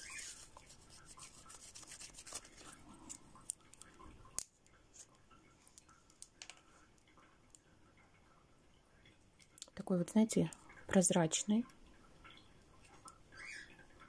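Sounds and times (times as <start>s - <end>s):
faint scratchy rubbing: 0.0s - 3.2s.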